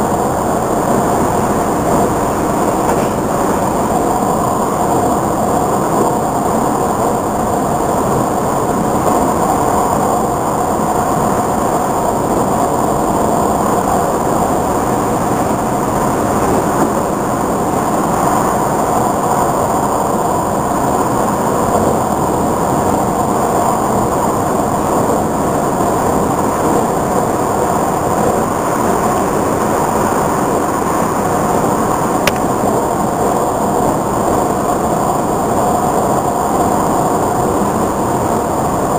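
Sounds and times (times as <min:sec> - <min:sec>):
train wheels on rail: 0:00.0 - 0:07.2, 0:27.6 - 0:33.6.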